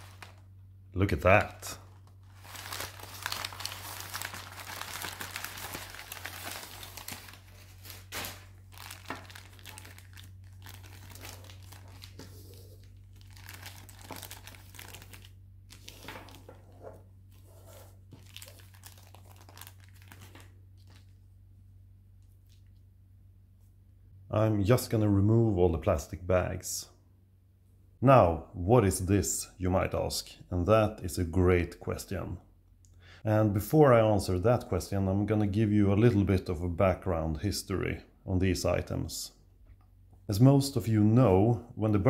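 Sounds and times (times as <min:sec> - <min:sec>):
plastic bags and paper crinkling: 0:00.0 - 0:00.5, 0:01.6 - 0:21.3.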